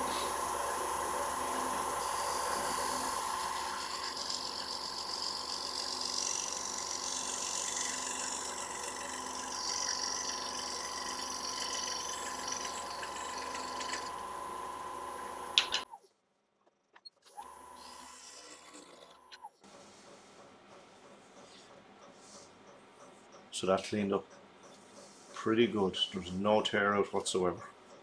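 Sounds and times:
lathe motor whine: 0.0 - 15.8.

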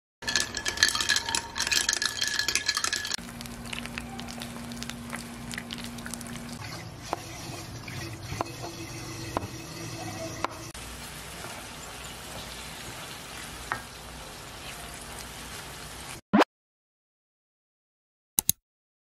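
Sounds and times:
straw clinking against glass: 0.2 - 3.2
egg sizzling in a pan: 0.3 - 16.2.

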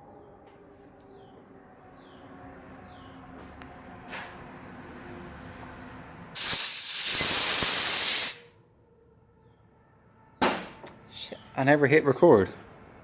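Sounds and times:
compressed air blow gun hissing: 6.4 - 8.4.

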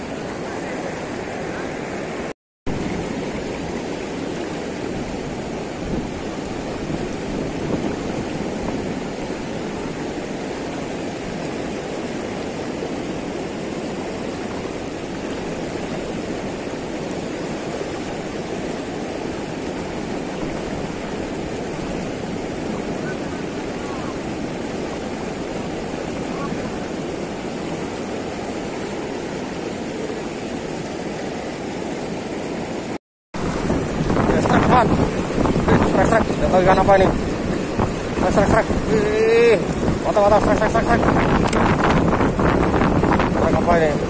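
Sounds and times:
river rushing: 0.0 - 44.0.

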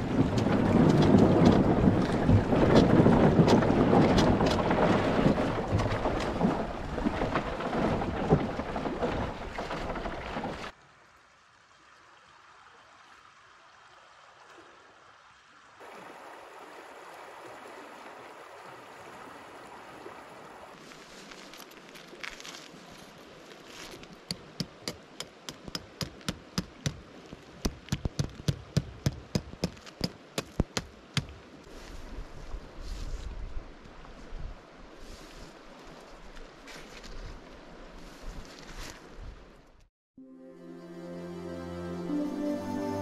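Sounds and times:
wind noise on microphone: 0.0 - 7.2, 31.9 - 35.3.

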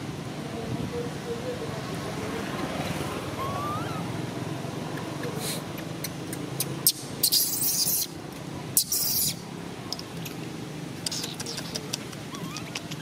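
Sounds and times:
baby monkey squealing: 3.4 - 4.1, 6.6 - 8.2, 8.8 - 9.4, 11.1 - 13.0
monkey harsh hissy cries: 3.4 - 4.1, 6.9 - 8.2, 8.8 - 9.4, 11.1 - 13.0.

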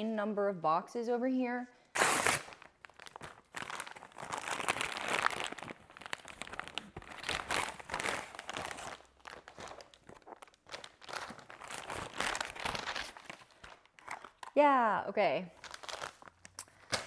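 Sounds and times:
paper bag crinkling: 15.6 - 16.6.

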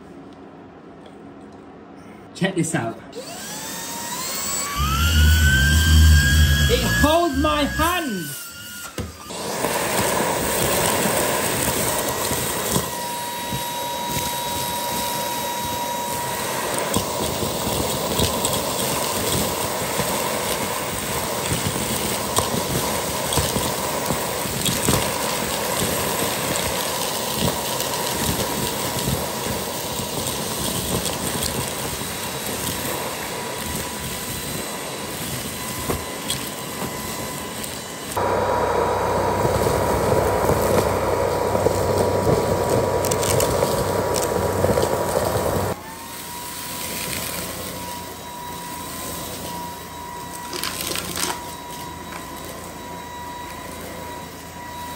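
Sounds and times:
vacuum suction rushing: 3.2 - 7.9, 9.2 - 12.9, 33.0 - 45.8
debris clicking in vacuum: 8.7 - 45.8, 46.7 - 52.6.

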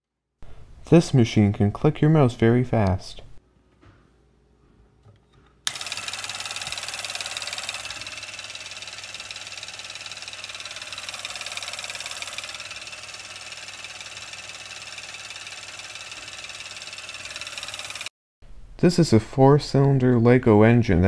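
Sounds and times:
rapid mouse clicks: 5.7 - 18.1
small motor running: 5.7 - 18.1.

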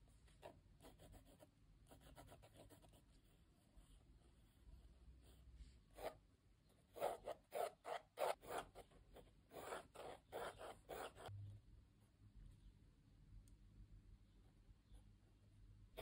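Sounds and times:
pencil scratching on paper: 0.3 - 11.3.

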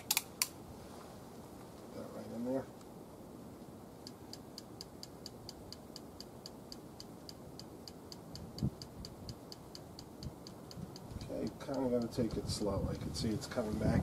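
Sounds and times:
high ticking: 4.0 - 12.7.

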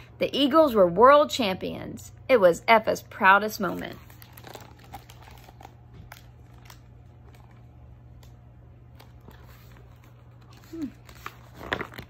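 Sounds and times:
steady low hum: 0.0 - 12.0
book handling clicks and rustles: 3.7 - 12.0.

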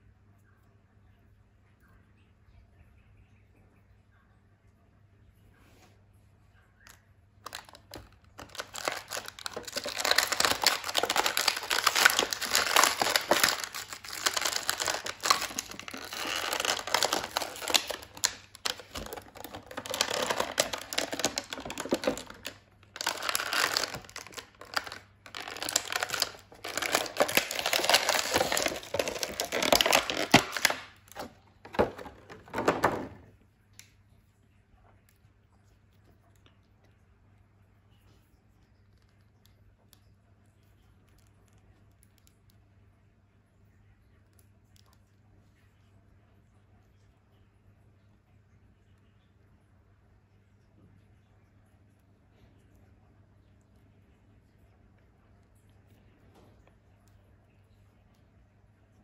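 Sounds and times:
plastic packaging crinkling: 7.4 - 33.3.

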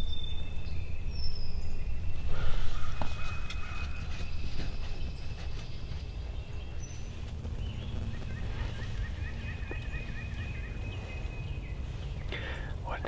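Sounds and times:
low rumble: 4.3 - 13.0
wild turkey calling: 8.1 - 13.0.

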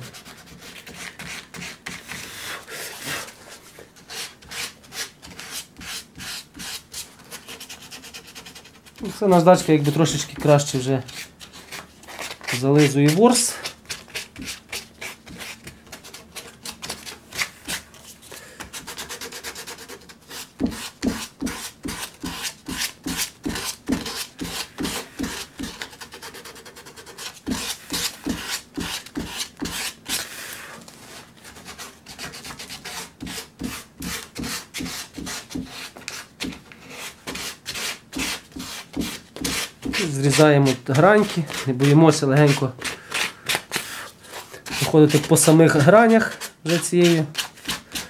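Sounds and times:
sanding sponge rubbing wood: 44.4 - 48.0.

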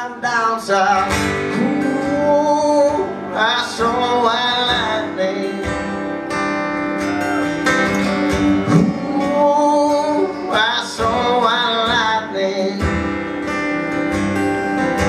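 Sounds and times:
man singing: 0.0 - 6.2, 8.0 - 13.2
acoustic guitar strumming: 0.0 - 15.0.

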